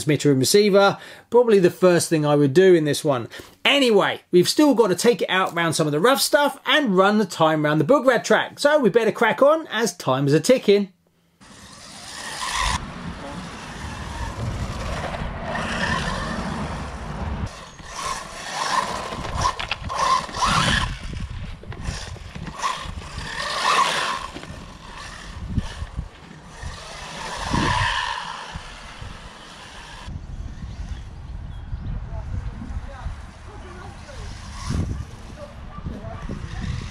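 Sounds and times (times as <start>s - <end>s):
rc car electric motor whining: 11.4s - 31.2s, 33.5s - 35.5s, 36.2s - 36.9s.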